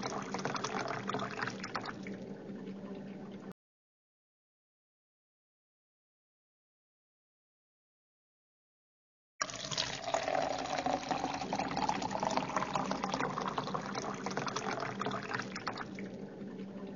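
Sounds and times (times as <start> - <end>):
water pouring into a glass: 0.0 - 2.0, 9.4 - 16.1.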